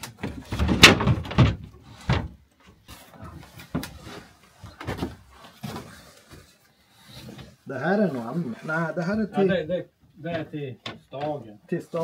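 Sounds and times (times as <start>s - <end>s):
thuds: 0.0s - 2.4s.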